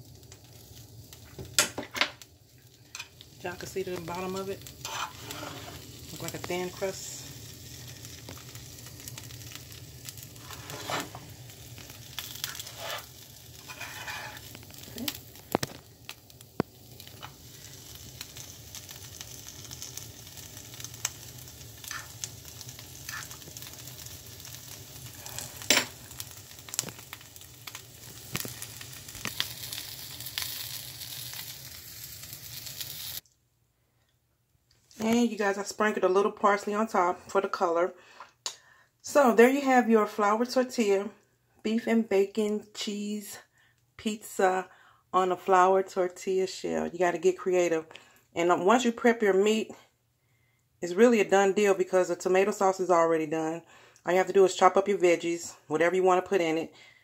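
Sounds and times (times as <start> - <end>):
food sizzling in a pan: 0.0 - 33.2
metal fork scraping a pan: 4.8 - 5.8, 10.4 - 11.2, 12.4 - 14.5, 21.9 - 22.1, 23.1 - 23.4.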